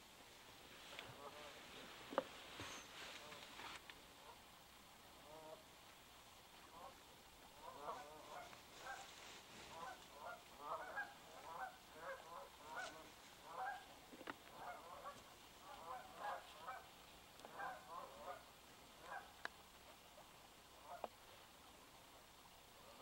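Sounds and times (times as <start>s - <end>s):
geese honking: 1.0s - 1.6s, 7.6s - 13.9s, 14.5s - 16.9s, 17.5s - 19.3s, 20.8s - 21.1s.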